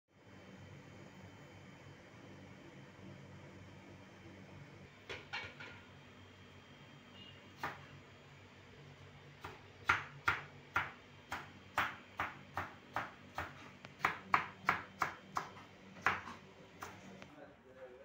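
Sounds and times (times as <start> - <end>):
knife chopping on plastic board: 9.4 - 17.0.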